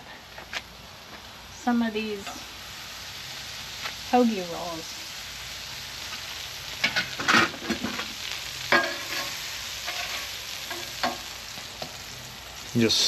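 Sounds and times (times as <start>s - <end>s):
butter sizzling on griddle: 0.1s - 13.0s
metal spatula scraping and tapping: 8.7s - 11.2s.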